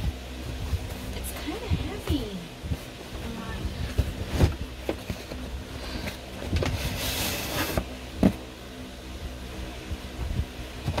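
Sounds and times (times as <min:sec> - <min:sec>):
cardboard scraping slide: 0:04.0 - 0:07.9
cardboard box handling knocks: 0:08.2 - 0:08.4.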